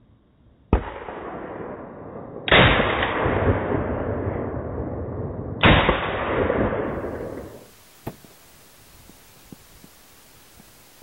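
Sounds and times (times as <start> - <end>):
rifle shots with echo: 0.7 - 7.7.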